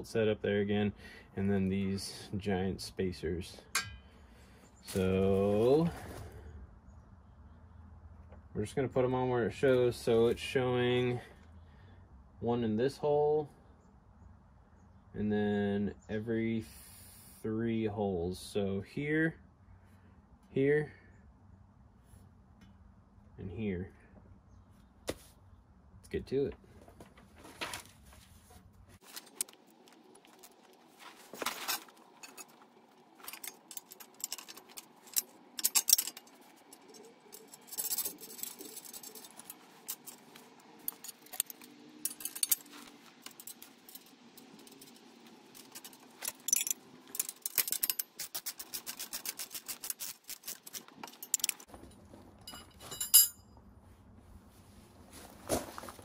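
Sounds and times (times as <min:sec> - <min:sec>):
sharp metal clack: 0:03.7 - 0:04.1
steel bolts and washers clinking: 0:03.7 - 0:04.1, 0:29.0 - 0:51.7, 0:52.4 - 0:53.5.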